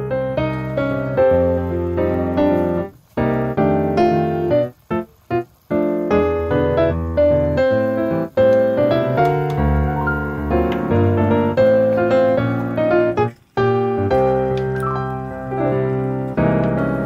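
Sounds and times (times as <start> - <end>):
keyboard tune with held chords: 6.2 - 17.0.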